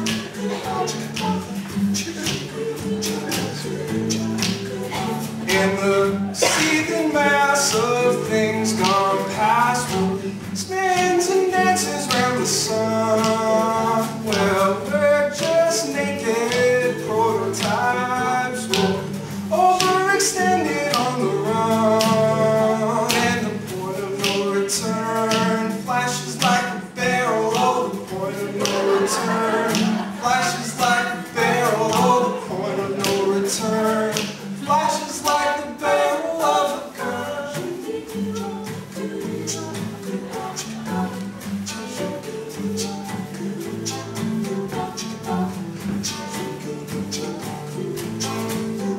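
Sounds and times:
percussive taps: 0:00.0 - 0:35.6
acoustic guitar: 0:00.0 - 0:48.9
people singing together: 0:00.0 - 0:48.9.

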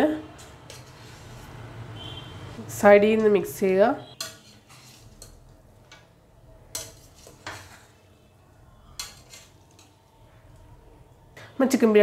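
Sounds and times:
metal spoon scraping pot: 0:00.3 - 0:01.6, 0:04.1 - 0:05.6, 0:06.7 - 0:08.0, 0:08.8 - 0:10.0.

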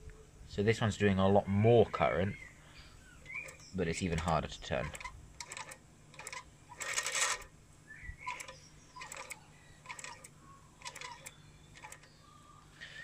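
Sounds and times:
gearing clicks: 0:03.2 - 0:07.5, 0:08.2 - 0:12.1
gearing rattle: 0:03.2 - 0:07.5, 0:08.2 - 0:12.1.

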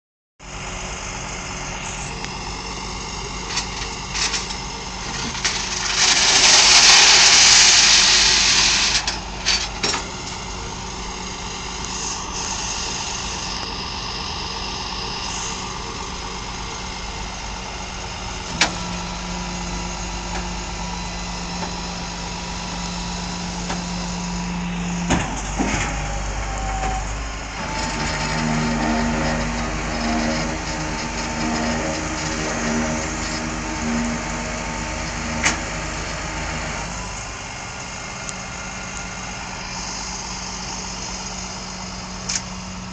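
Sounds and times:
truck engine idling: 0:00.4 - 0:42.9
loud rushing noise: 0:27.5 - 0:37.1
steady hum: 0:27.5 - 0:37.4.

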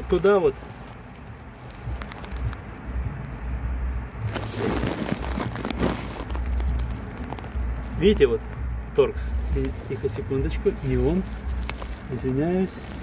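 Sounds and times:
rustling: 0:00.0 - 0:13.0.

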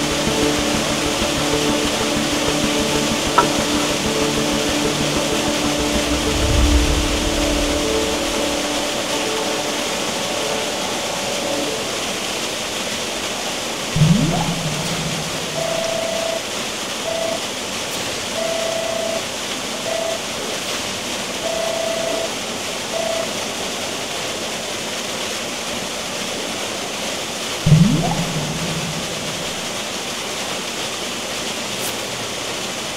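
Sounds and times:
waterfall rushing: 0:00.0 - 0:32.9
low impact with rising sweep: 0:03.2 - 0:09.5
flat electronic beeps: 0:14.0 - 0:16.4, 0:27.7 - 0:29.7.

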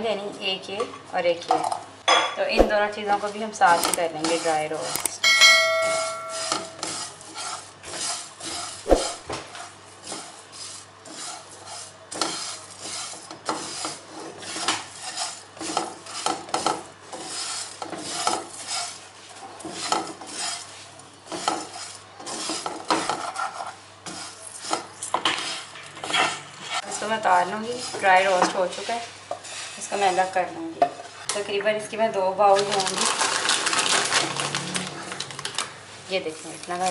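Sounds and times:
spatula scraping seeds in pan: 0:03.2 - 0:04.9, 0:06.8 - 0:30.4.

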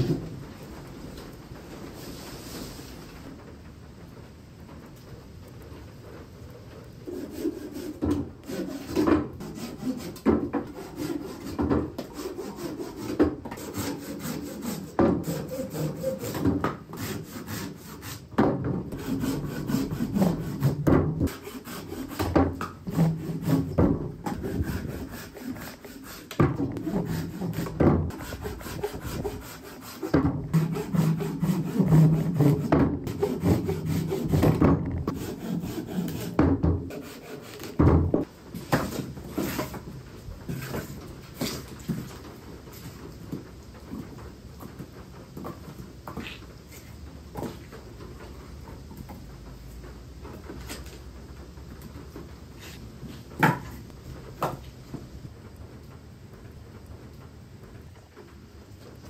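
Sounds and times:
hand saw cutting wood: 0:07.0 - 0:39.8.

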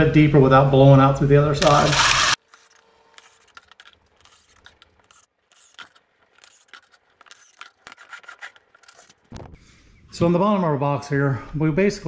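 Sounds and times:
drill handling clicks: 0:01.6 - 0:09.2.

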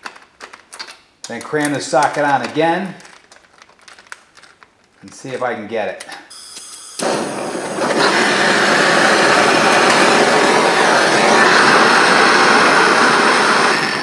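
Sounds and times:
gas torch flame hissing: 0:06.3 - 0:14.0.

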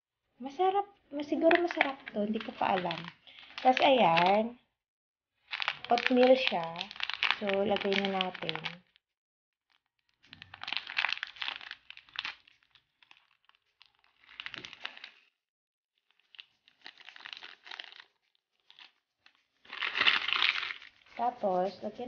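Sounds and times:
plastic sachet crinkling: 0:01.2 - 0:04.5, 0:05.4 - 0:09.0, 0:09.7 - 0:15.4, 0:16.0 - 0:22.0
oat flakes pouring into paper cup: 0:01.7 - 0:04.0, 0:05.5 - 0:08.8, 0:10.3 - 0:15.2, 0:16.2 - 0:21.1.

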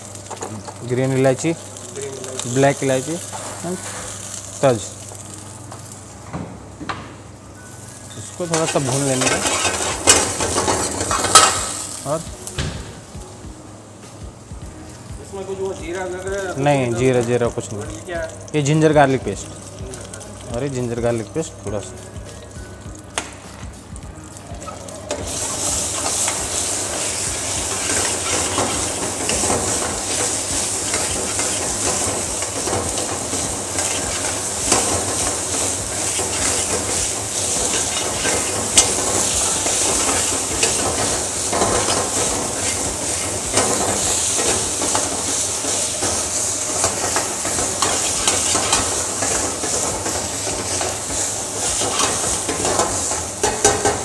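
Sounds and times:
spices sizzling in hot oil: 0:00.0 - 0:06.2, 0:07.3 - 0:13.2, 0:14.3 - 0:54.0
metal ladle scraping in pan: 0:08.5 - 0:11.6, 0:24.6 - 0:54.0.

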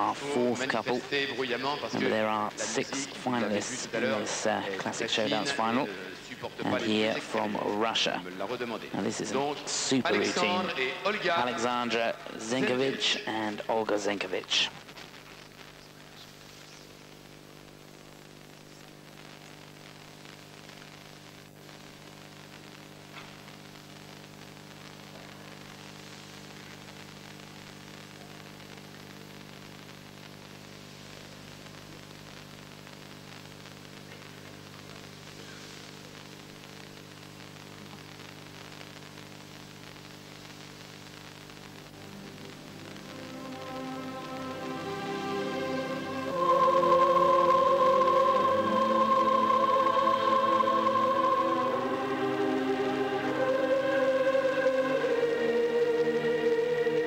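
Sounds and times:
electrical hum: 0:00.0 - 0:57.0
tape hiss: 0:00.0 - 0:57.0
music: 0:41.9 - 0:57.0.

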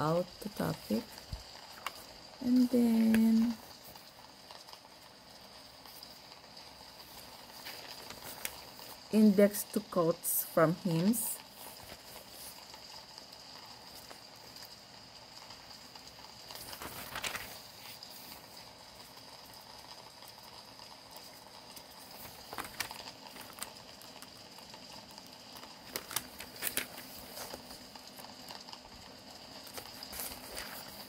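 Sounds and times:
faint steady hiss: 0:00.0 - 0:31.0
paper pages crackling: 0:00.4 - 0:04.6, 0:06.9 - 0:09.1, 0:11.0 - 0:12.8, 0:16.2 - 0:19.2, 0:21.7 - 0:31.0.

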